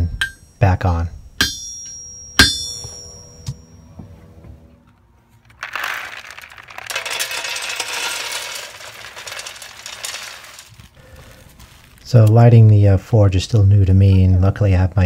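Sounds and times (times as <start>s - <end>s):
coal pouring into metal pan: 5.5s - 12.6s.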